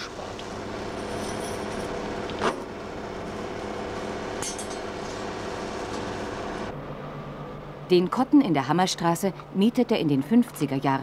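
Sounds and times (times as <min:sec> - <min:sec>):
belt polishing machine humming: 0:00.0 - 0:06.7.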